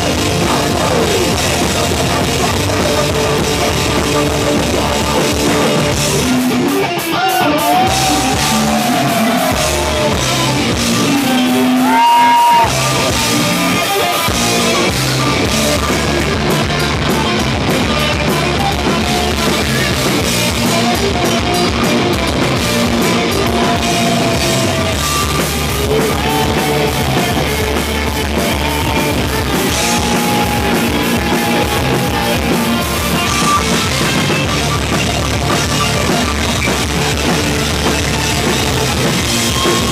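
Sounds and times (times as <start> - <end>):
distorted electric guitars: 0.0 - 39.9
drum kit: 0.0 - 39.9
shouted vocals: 7.1 - 13.2, 23.2 - 33.4.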